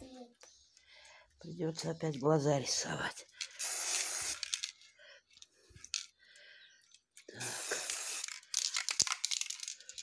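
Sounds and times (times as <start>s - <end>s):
aerosol spray can hissing: 3.5s - 4.6s, 7.4s - 8.4s.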